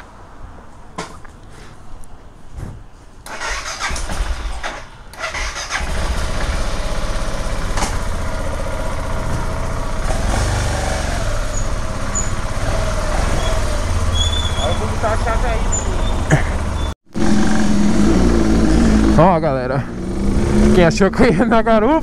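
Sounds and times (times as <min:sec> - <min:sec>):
motorcycle starter cranking: 0:03.3 - 0:08.5
motorcycle engine idling: 0:05.3 - 0:16.9.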